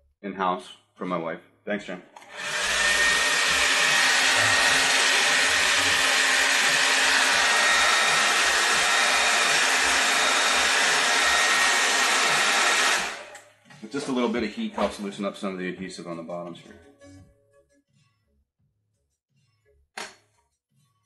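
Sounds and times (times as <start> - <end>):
hair dryer blowing: 2.2 - 13.4.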